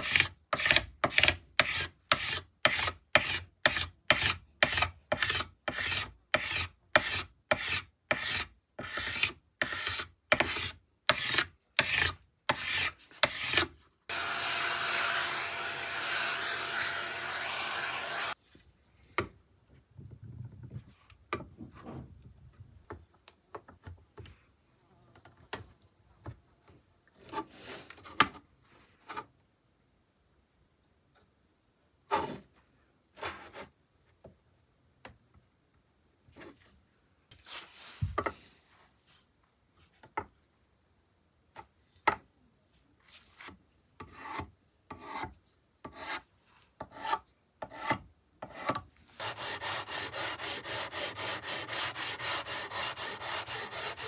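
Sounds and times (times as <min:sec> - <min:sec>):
steel scraper scraping wood: 0:00.0 - 0:18.4, 0:44.0 - 0:54.0
vacuum nozzle running: 0:14.1 - 0:18.3.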